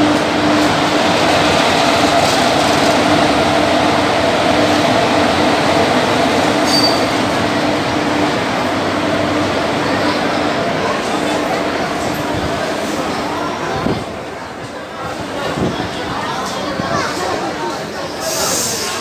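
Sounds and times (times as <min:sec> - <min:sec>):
train wheels rumbling on rail: 0:00.0 - 0:19.0
high squeak: 0:06.6 - 0:07.1.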